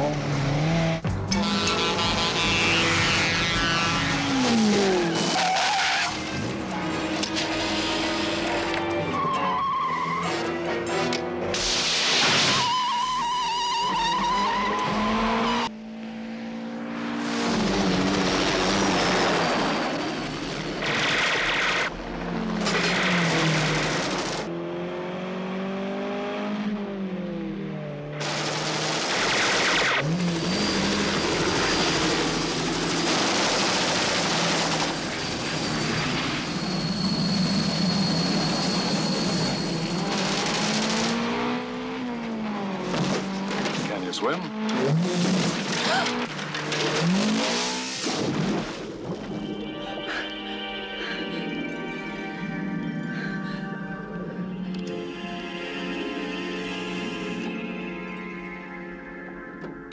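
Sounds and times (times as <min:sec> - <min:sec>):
tyres skidding: 0:00.2 - 0:15.7, 0:28.2 - 0:48.2.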